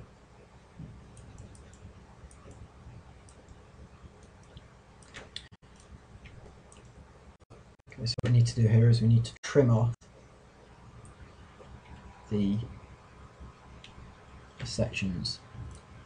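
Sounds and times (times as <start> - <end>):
faint low hum: 0.0 - 16.0
computer mouse clicks: 0.8 - 7.0, 15.6 - 15.9.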